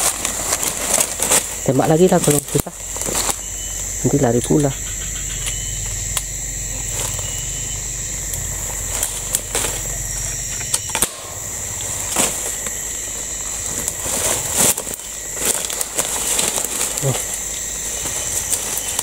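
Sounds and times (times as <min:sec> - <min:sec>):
insects droning: 0:00.0 - 0:19.0
air rifle shots: 0:10.9 - 0:12.4.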